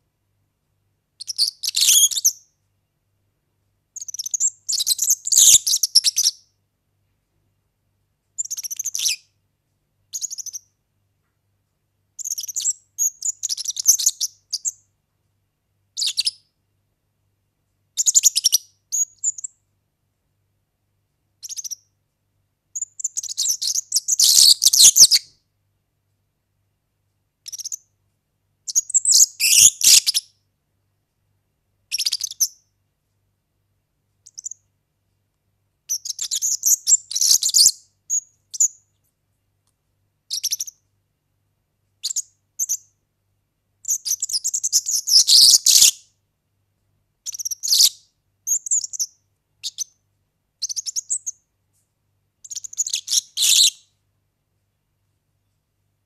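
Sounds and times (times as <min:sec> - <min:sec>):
bird singing high rapid phrases: 0:01.2 - 0:02.4, 0:04.0 - 0:06.4, 0:08.4 - 0:09.2, 0:10.2 - 0:10.7, 0:12.2 - 0:14.8, 0:16.0 - 0:16.4, 0:18.0 - 0:19.5, 0:21.4 - 0:21.8, 0:22.8 - 0:25.3, 0:27.5 - 0:27.8, 0:28.7 - 0:30.3, 0:31.9 - 0:32.6, 0:35.9 - 0:38.8, 0:40.3 - 0:40.8, 0:42.0 - 0:42.9, 0:43.9 - 0:46.0, 0:47.3 - 0:50.0, 0:50.6 - 0:51.3, 0:52.4 - 0:53.8.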